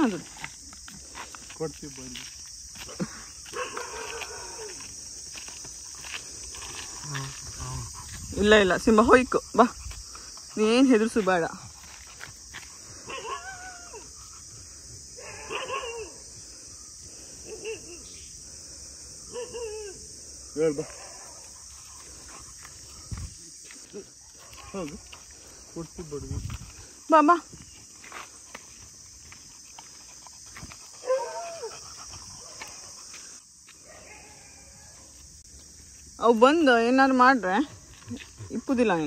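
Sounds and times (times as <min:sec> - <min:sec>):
insects chirring: 0:00.0 - 0:39.0
dog whining yelps: 0:13.1 - 0:14.1, 0:15.2 - 0:16.2, 0:19.3 - 0:20.1, 0:31.0 - 0:31.8.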